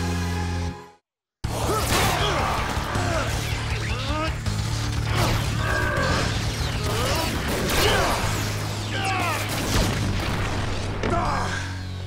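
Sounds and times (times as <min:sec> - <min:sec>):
background music: 0:00.0 - 0:12.0
energy beams clashing: 0:01.7 - 0:11.0.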